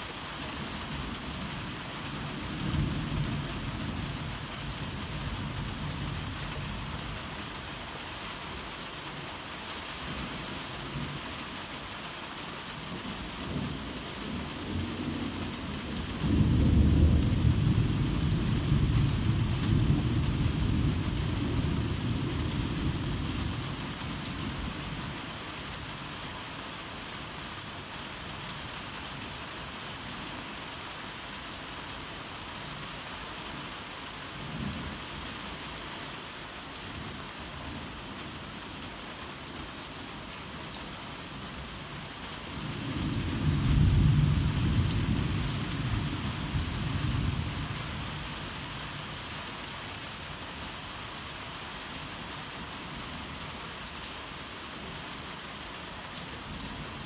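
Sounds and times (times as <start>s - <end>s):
heavy rain falling: 0.0s - 57.0s
thunder rumbling: 16.2s - 23.0s.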